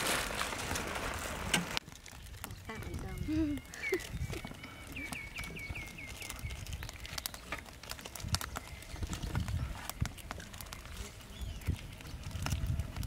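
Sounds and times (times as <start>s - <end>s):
plastic sachets crinkling: 0.0s - 13.0s
bird chirping: 2.5s - 7.7s, 10.9s - 12.2s.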